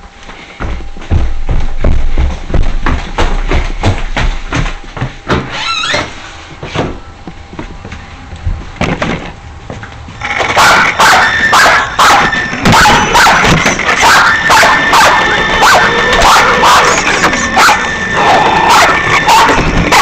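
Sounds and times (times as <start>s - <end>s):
puppy barking: 10.6s - 20.0s.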